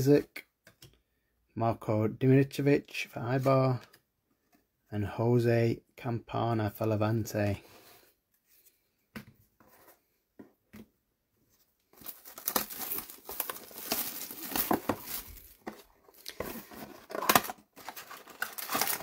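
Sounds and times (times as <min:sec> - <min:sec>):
card pack wrapper tearing: 0:12.0 - 0:19.0.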